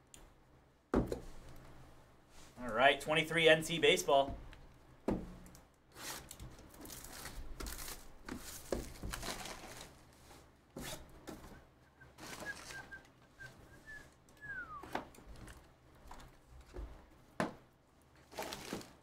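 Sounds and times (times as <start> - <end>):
wrapping rustling and crinkling: 5.9 - 13.1, 18.1 - 19.0
cardboard scraping: 6.0 - 11.1.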